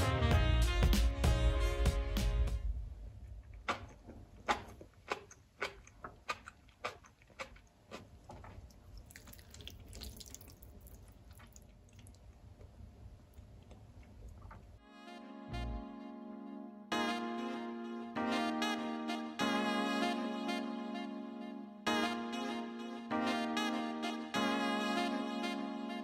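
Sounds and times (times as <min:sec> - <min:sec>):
faint room noise: 0:02.6 - 0:16.9
wet eating sounds: 0:03.5 - 0:14.8.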